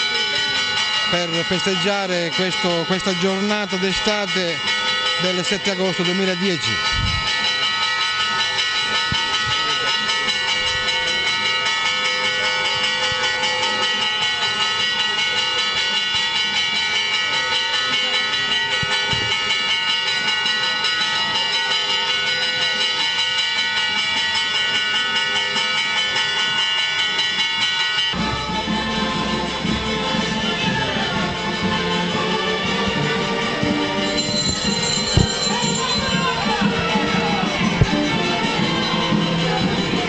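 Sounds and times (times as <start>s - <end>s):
church bells pealing: 0.0s - 40.0s
faint crowd voices: 28.2s - 40.0s.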